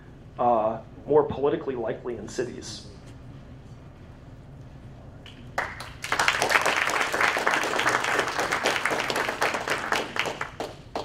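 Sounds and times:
audience applause: 0:05.6 - 0:11.0.

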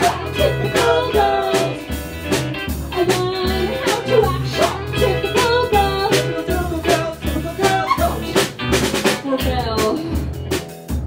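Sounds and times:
person singing: 0:00.0 - 0:01.8, 0:03.0 - 0:08.5
live band playing: 0:00.0 - 0:11.0.

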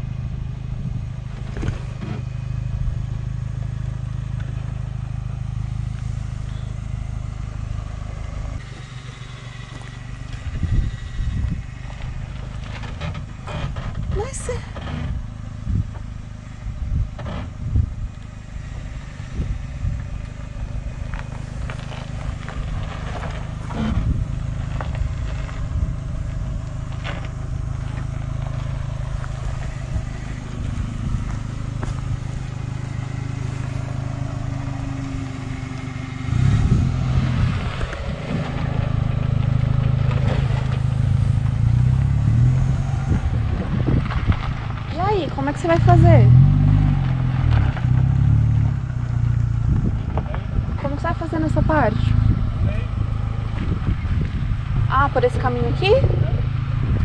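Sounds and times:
off-road vehicle engine at low revs: 0:00.0 - 0:57.0
stones knocking and scraping: 0:21.0 - 0:35.9.

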